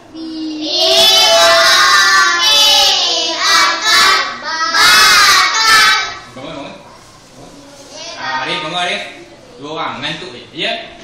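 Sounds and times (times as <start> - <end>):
children chanting in unison: 0.2 - 6.3.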